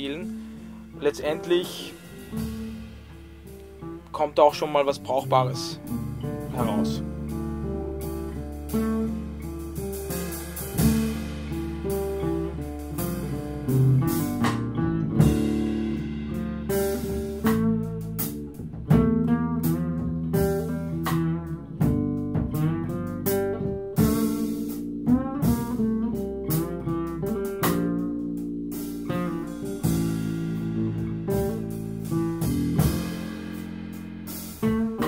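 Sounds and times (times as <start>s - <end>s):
electric bass: 0.0s - 35.0s
nylon-string guitar plucking: 0.0s - 35.0s
sharp percussive hits: 0.4s - 4.6s.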